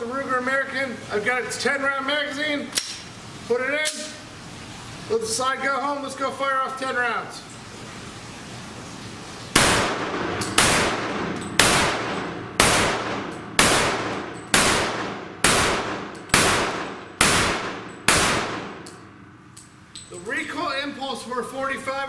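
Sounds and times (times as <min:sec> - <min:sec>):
pistol shots with echo: 0:09.6 - 0:19.0.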